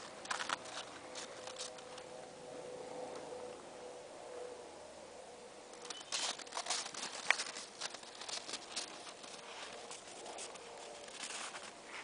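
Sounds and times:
crunching and scuffling of snow: 5.8s - 12.0s.

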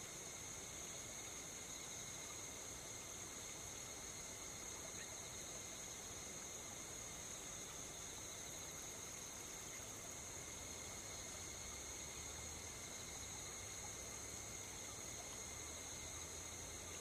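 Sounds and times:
faint hiss: 0.0s - 17.0s
night insects trilling: 0.0s - 17.0s.

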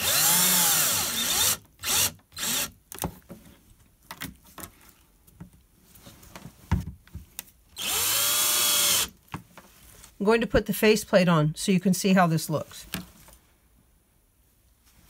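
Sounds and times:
cordless drill motor whine: 0.0s - 2.7s, 7.8s - 9.1s.

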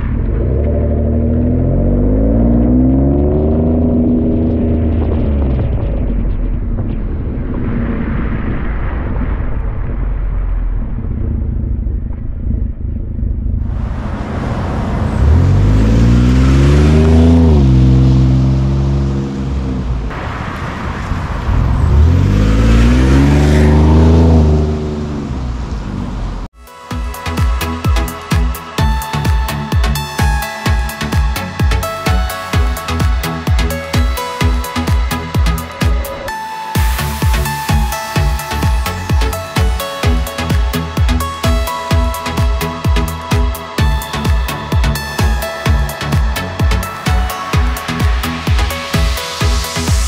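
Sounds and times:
truck engine revving: 0.0s - 6.8s, 10.5s - 26.5s
truck accelerating: 0.0s - 50.0s.

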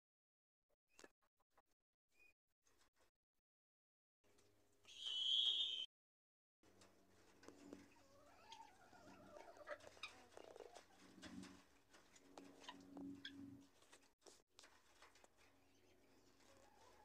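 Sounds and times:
guineafowl and chicken calls: 7.8s - 11.6s.

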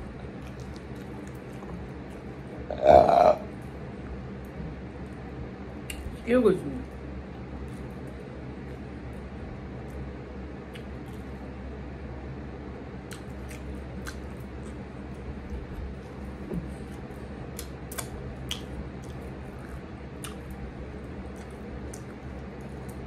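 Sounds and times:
eating and handling food: 0.0s - 23.0s
steady low hum: 0.0s - 23.0s.

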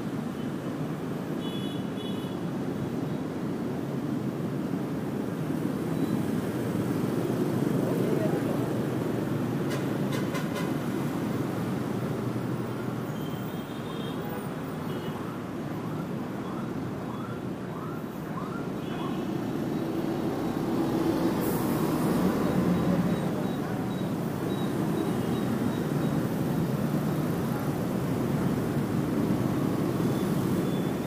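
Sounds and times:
city street traffic: 0.0s - 31.0s.

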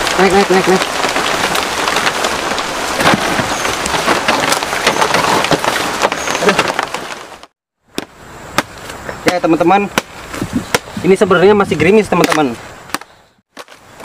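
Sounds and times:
rain pattering: 0.0s - 7.5s
machete striking bamboo: 7.9s - 10.9s, 12.2s - 13.8s.

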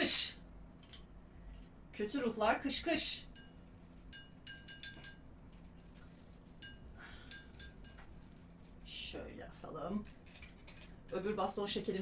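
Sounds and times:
small metal bells ringing: 3.3s - 9.0s.

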